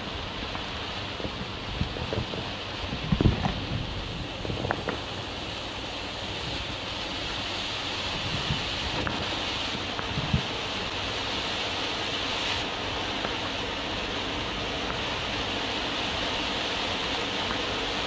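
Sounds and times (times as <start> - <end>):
fountain fireworks hissing: 0.0 - 18.0
faint firework pops: 3.1 - 3.6, 4.4 - 5.2.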